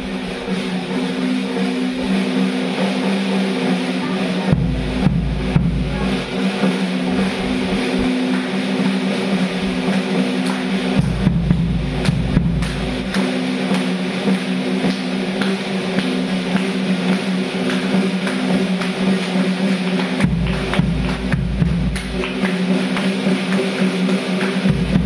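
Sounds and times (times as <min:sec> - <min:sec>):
drum kit played with sticks: 0:00.0 - 0:25.0.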